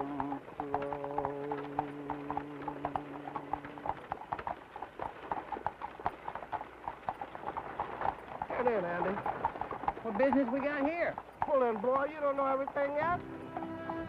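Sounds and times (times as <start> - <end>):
man singing long low note: 0.0 - 4.0
horse hooves clip-clopping: 0.0 - 14.0.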